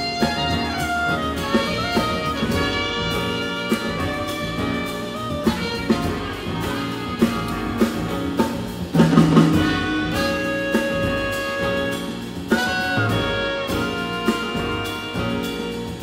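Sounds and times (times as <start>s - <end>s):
plucked double bass: 0.0s - 12.0s
clarinet: 0.0s - 16.0s
drum kit with cymbals: 0.0s - 16.0s
piano: 0.0s - 16.0s
trumpet: 0.0s - 16.0s.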